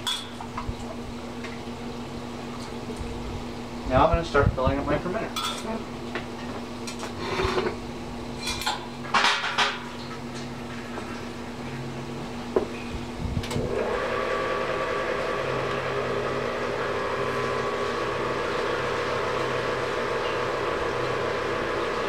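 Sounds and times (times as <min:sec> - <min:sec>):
pump humming: 0:09.6 - 0:22.0.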